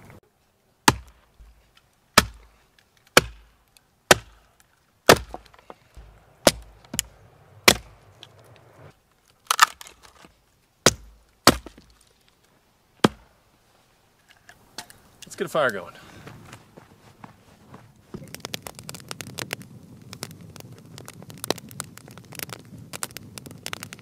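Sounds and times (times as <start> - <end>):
hatchet chopping wood: 0.9 - 1.6, 2.2 - 2.5, 3.1 - 3.5, 4.1 - 4.4, 5.1 - 7.9, 10.8 - 12.0, 13.0 - 13.3.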